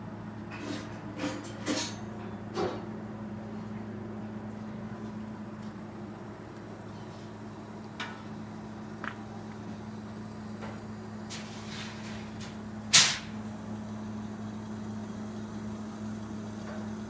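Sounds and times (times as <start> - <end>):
steady low hum: 0.0 - 17.0
wood fire crackling: 4.4 - 17.0
loud sharp snap: 12.9 - 13.4.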